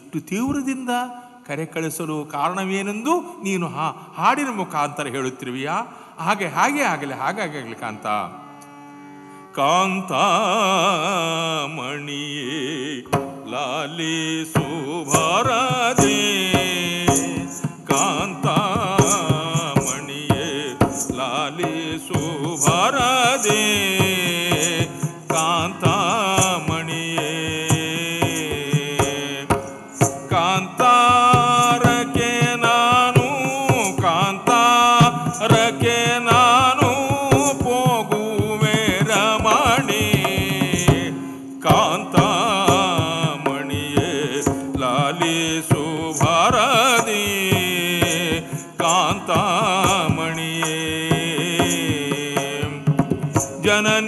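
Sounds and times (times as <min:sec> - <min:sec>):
solo voice singing ornamented: 0:10.2 - 0:54.0
hand drum strokes: 0:12.8 - 0:54.0.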